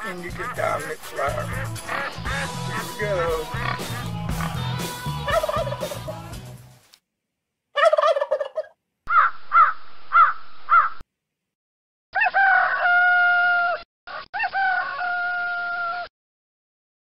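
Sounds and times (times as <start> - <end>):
poultry squawking: 0.1 - 6.2, 7.8 - 11.0
rooster crowing: 12.2 - 16.1.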